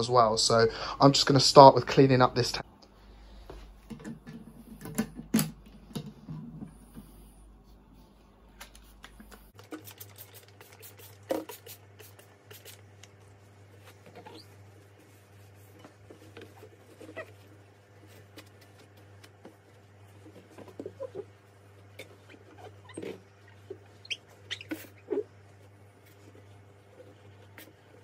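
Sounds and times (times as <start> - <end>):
squeaks of rubbing on glass: 14.0 - 14.7, 16.4 - 17.6, 20.5 - 21.4, 22.0 - 25.4.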